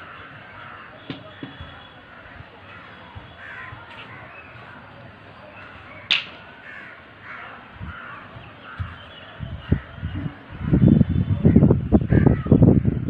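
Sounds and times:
crows cawing: 0.0 - 4.8, 5.6 - 9.1.

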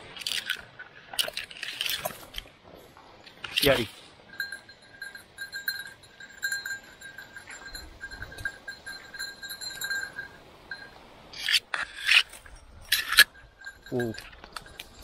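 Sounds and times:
dog collar bell jingling: 4.3 - 11.0, 13.2 - 15.0.

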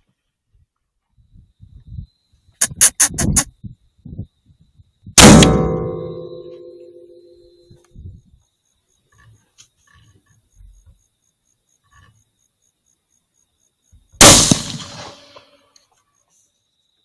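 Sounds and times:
rifle shot: 5.2 - 6.8, 14.2 - 15.5.

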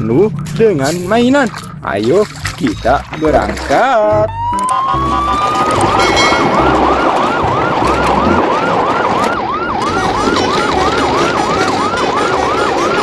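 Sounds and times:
siren yelping: 3.2 - 13.0.

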